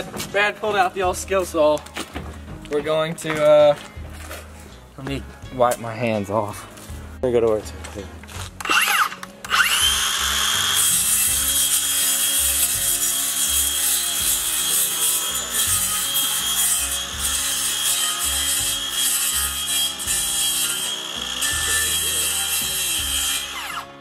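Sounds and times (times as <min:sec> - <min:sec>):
circular saw cutting fish: 0:08.7 - 0:24.0.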